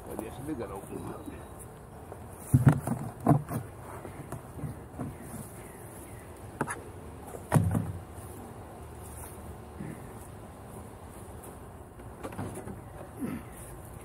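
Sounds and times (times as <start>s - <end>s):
knocks and thumps: 2.5s - 3.7s
honeybees buzzing: 3.6s - 12.2s.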